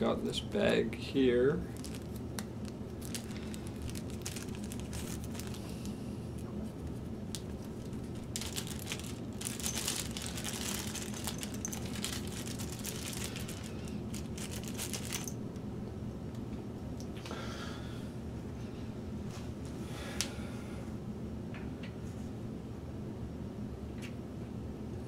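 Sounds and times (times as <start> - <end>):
steady low hum: 0.0 - 25.0
plastic bag crinkling: 1.7 - 5.8, 6.7 - 15.4.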